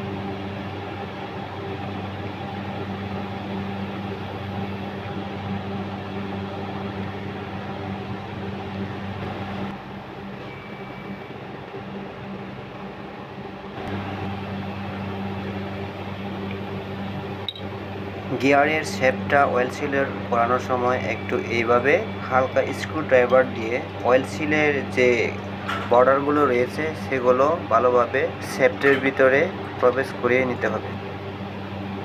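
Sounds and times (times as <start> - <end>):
low machine hum: 0.0 - 32.0.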